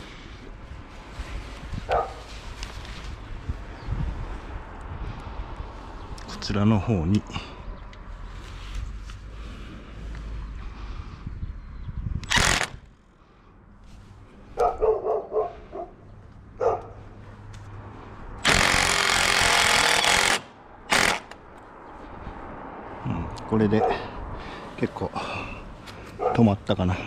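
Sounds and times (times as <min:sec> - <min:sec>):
dog barking: 0:01.9 - 0:02.2, 0:14.6 - 0:16.0, 0:16.6 - 0:17.0, 0:23.8 - 0:24.0, 0:26.2 - 0:26.5
impact driver driving screws: 0:12.2 - 0:12.8, 0:18.4 - 0:21.4.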